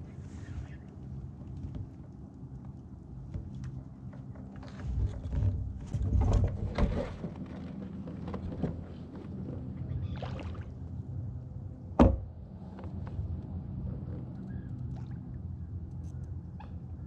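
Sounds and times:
splashing water: 0:10.0 - 0:10.8
light clicks of fishing tackle: 0:15.8 - 0:16.4.

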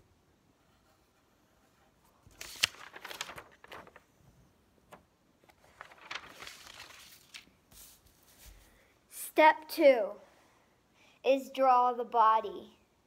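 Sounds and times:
paper rustling and crinkling: 0:02.1 - 0:08.8.

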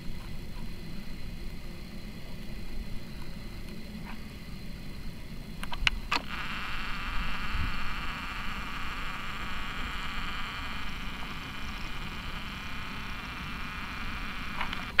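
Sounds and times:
zoom motor whirring: 0:05.7 - 0:15.0.

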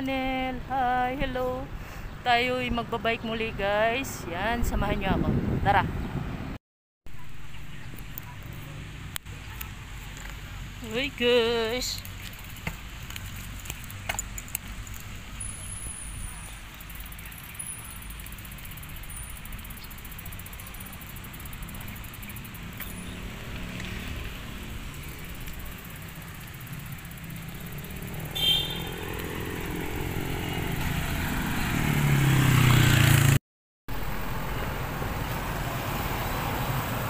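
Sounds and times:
traffic rumble: 0:00.0 - 0:37.0
vehicle engine passing: 0:20.0 - 0:37.0.

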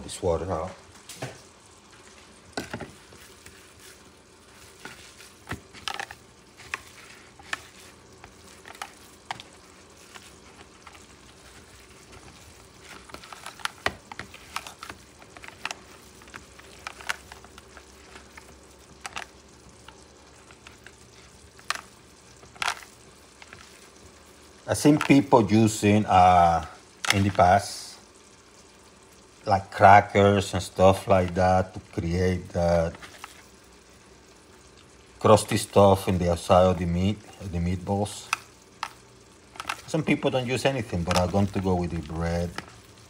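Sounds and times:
faint steady hum: 0:00.0 - 0:43.0
wet squishing of kneaded bread: 0:00.6 - 0:21.6.

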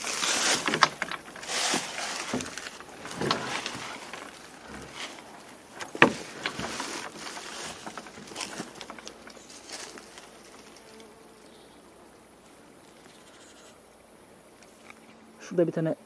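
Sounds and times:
footsteps crunching on dry ground: 0:00.0 - 0:11.1
rustling through dry grass: 0:00.0 - 0:13.9.

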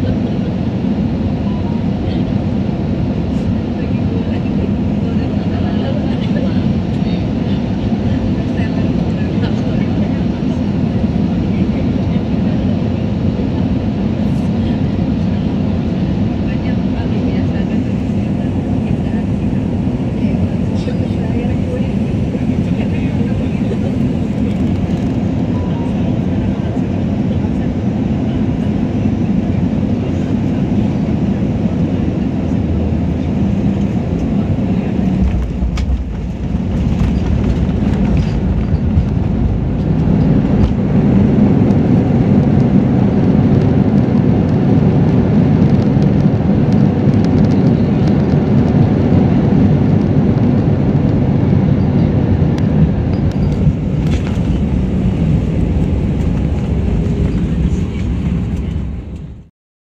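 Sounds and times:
jet engines and wheels rumbling: 0:00.0 - 0:59.5.

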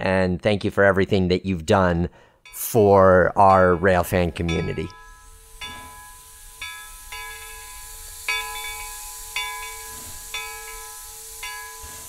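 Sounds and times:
steady high hiss: 0:02.4 - 0:12.0.

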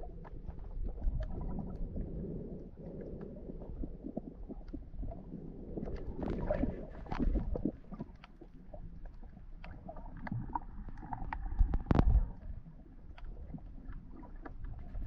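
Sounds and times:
muffled underwater rumble: 0:00.0 - 0:15.0
clicks and crackles: 0:05.8 - 0:15.0.

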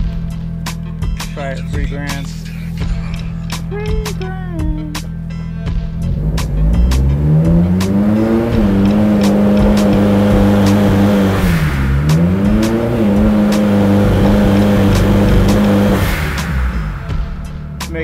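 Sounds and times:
engine running under load: 0:06.0 - 0:17.4.

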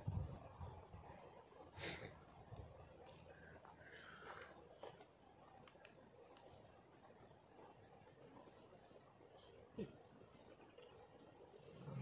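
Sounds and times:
faint bird chirps: 0:01.2 - 0:02.6, 0:03.8 - 0:04.6, 0:07.5 - 0:12.0.

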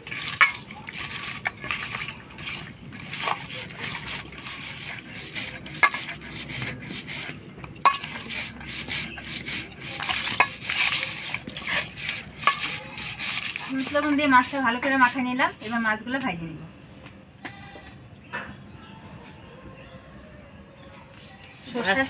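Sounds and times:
hands rubbing wet fish: 0:00.0 - 0:15.8.

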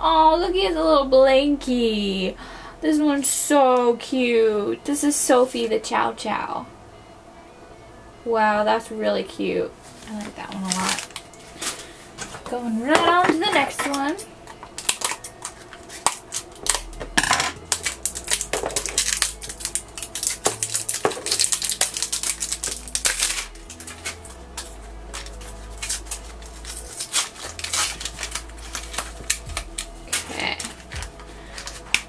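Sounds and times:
cardboard tearing and crackling: 0:10.1 - 0:11.8, 0:17.6 - 0:32.0
scissors cutting cardboard: 0:25.1 - 0:32.0.

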